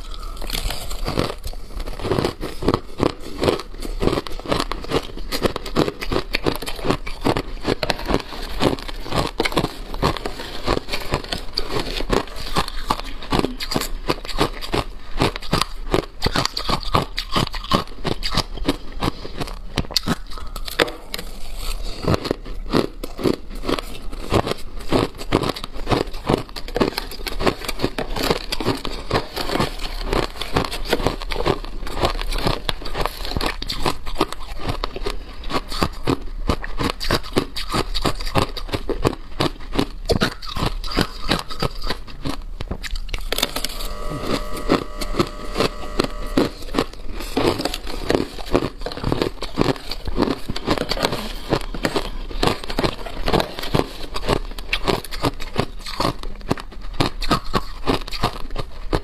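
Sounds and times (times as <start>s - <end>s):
ice crunching between teeth: 0.0s - 59.0s
steady ringing tones: 43.5s - 46.8s.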